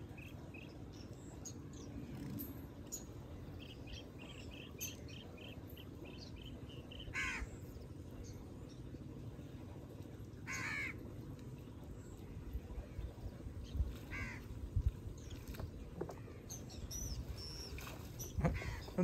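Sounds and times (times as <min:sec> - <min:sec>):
birds chirping: 0:00.0 - 0:09.4, 0:15.1 - 0:19.0.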